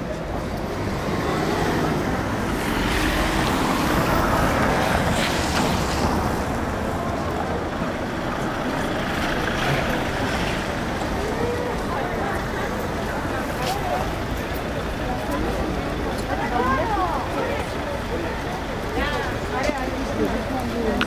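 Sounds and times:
steady low traffic rumble: 0.0s - 21.0s.

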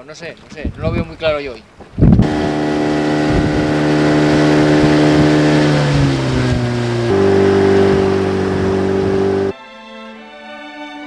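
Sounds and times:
boat engine running: 2.2s - 9.5s.

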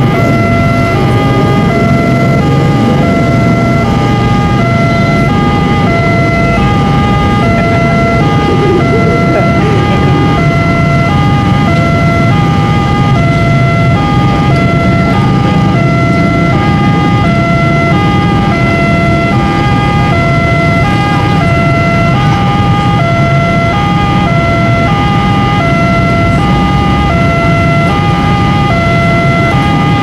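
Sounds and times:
train rumbling past: 0.0s - 5.9s
two-tone level crossing siren: 0.0s - 30.0s.

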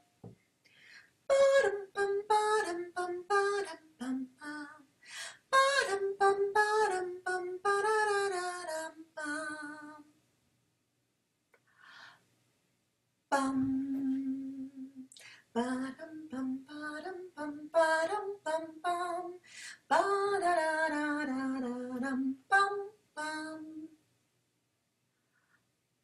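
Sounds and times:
woman singing wordless song: 1.3s - 10.2s, 13.3s - 24.0s.

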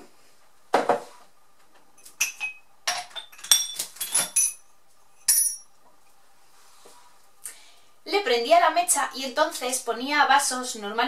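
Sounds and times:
drinking glasses clinking: 2.0s - 4.6s, 5.2s - 5.7s.

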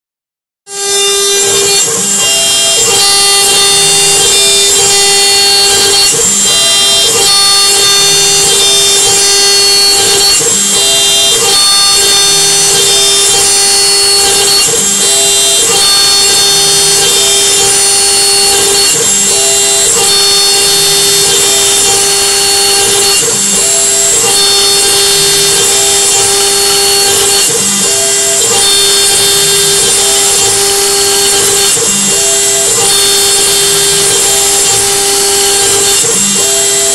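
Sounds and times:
router spindle cutting metal: 0.7s - 36.9s.

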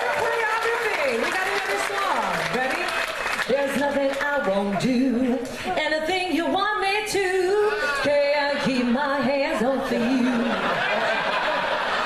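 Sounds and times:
woman singing unaccompanied: 3.4s - 10.5s.

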